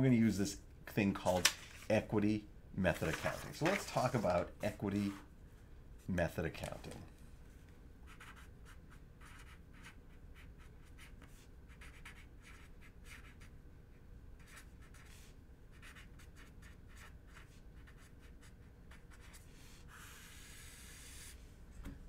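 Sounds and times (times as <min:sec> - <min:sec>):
marker writing on paper: 0:08.1 - 0:13.5, 0:14.4 - 0:21.4.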